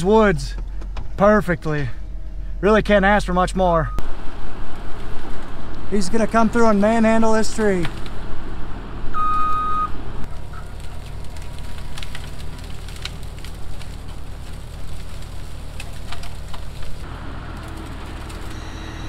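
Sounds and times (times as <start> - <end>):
skid steer engine running: 3.9 - 19.0
branches cracking and snapping: 4.0 - 8.6, 10.2 - 18.6
short beep: 9.2 - 9.9, 18.6 - 19.0.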